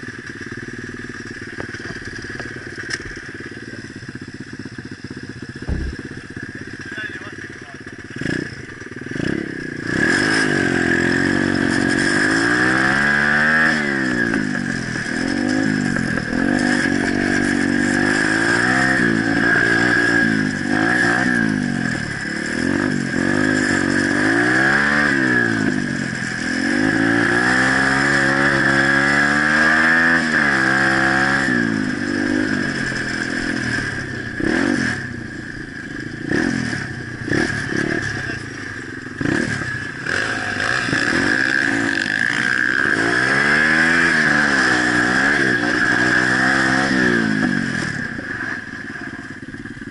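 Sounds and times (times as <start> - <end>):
small motorbike engine revving: 0.0 - 49.9.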